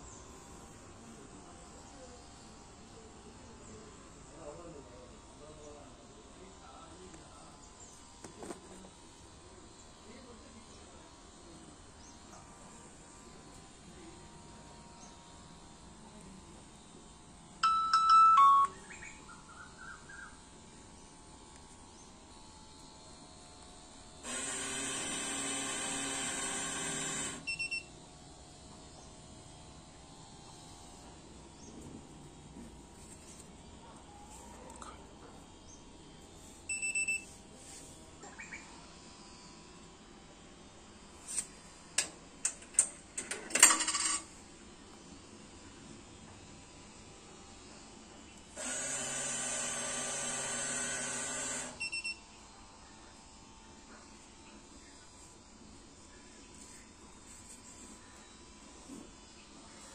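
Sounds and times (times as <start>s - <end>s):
vending machine motor running: 19.4s - 59.9s
vending machine mechanism whirring: 24.1s - 27.9s, 41.1s - 44.4s, 48.4s - 52.2s.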